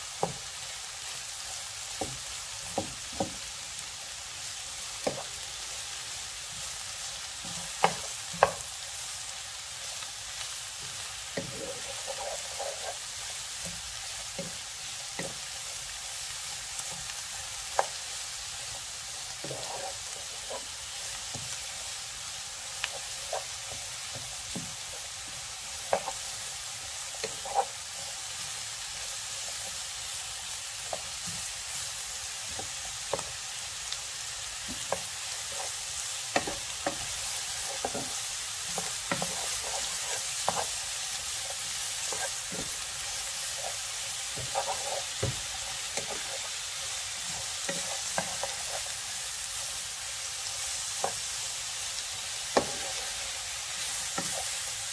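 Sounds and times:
vegetables sizzling in a pan: 0.0s - 54.9s
wooden spatula scraping a pan: 11.3s - 15.6s, 19.3s - 21.6s, 22.8s - 26.4s, 27.0s - 28.2s, 34.6s - 49.1s, 52.5s - 54.7s.

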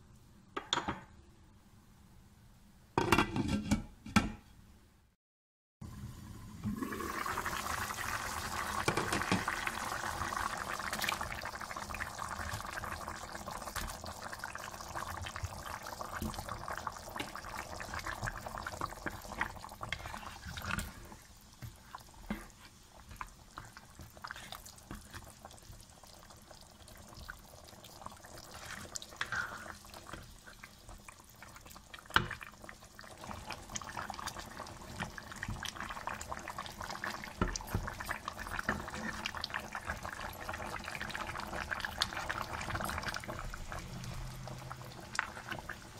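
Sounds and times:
curry bubbling in a wok: 6.8s - 45.9s.

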